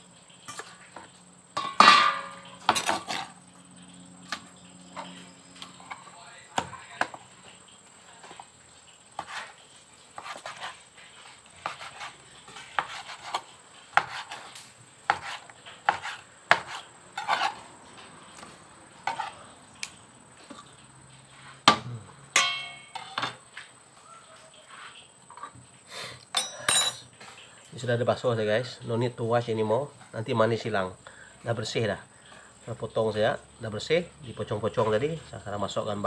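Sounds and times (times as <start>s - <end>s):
metallic ringing of steel bowl: 22.4s - 23.2s, 26.4s - 27.0s.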